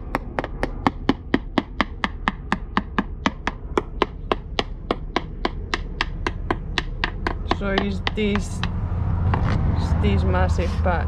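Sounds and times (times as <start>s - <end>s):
screwdriver tapping on boat hull: 0.0s - 8.7s.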